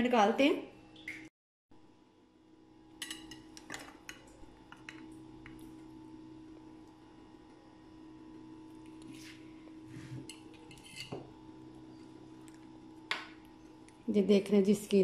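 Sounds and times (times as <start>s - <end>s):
faint steady hum: 1.8s - 15.0s
metal server scraping glass dish: 10.2s - 11.2s.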